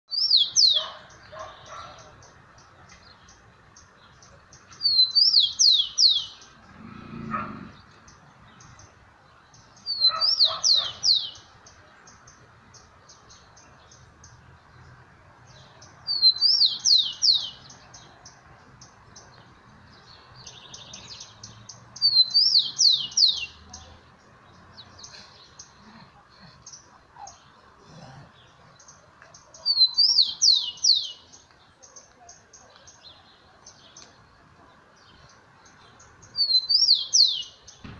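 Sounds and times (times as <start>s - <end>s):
sparrow whistled song: 0.1s - 1.9s, 4.7s - 6.4s, 16.1s - 17.7s, 20.4s - 23.6s, 29.6s - 31.3s, 36.2s - 37.9s.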